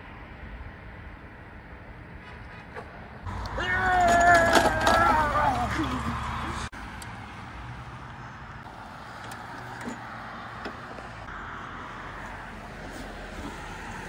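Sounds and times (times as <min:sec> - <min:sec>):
lawn mower engine running: 0:03.3 - 0:06.0.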